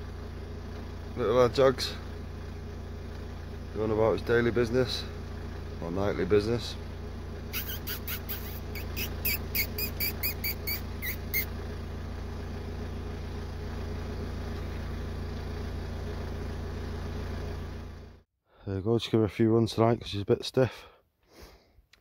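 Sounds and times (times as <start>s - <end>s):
low engine-like hum: 0.0s - 18.3s
short high squeaks: 7.5s - 11.6s.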